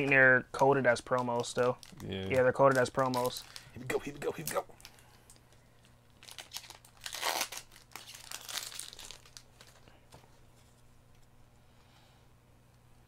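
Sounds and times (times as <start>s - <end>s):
foil wrapper crinkling and tearing: 1.0s - 9.9s.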